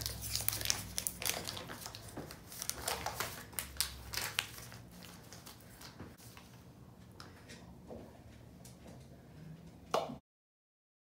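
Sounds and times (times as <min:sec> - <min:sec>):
paper wrapper crinkling: 0:00.0 - 0:06.6.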